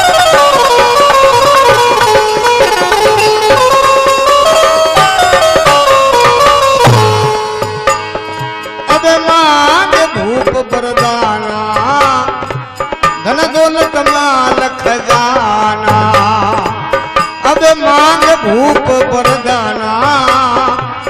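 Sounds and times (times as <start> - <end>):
harmonium: 0.0 - 21.0
man singing: 8.8 - 21.0.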